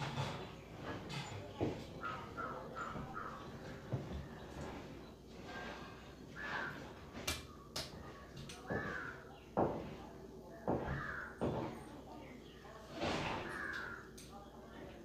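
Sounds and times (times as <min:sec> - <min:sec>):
crows cawing: 0:08.6 - 0:09.4, 0:10.8 - 0:11.5, 0:13.4 - 0:14.2.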